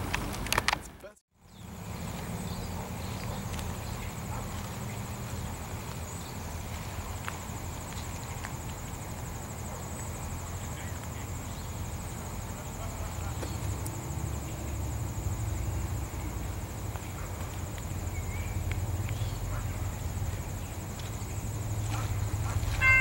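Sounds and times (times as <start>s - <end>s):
scattered clicks: 0.0s - 1.1s
faint high whine: 18.0s - 23.0s.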